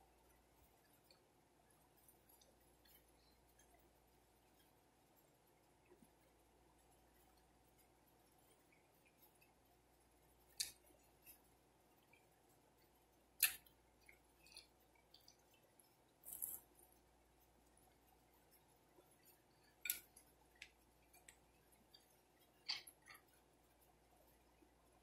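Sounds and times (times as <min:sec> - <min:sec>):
mouth clicks and lip smacks: 0:13.4 - 0:15.5.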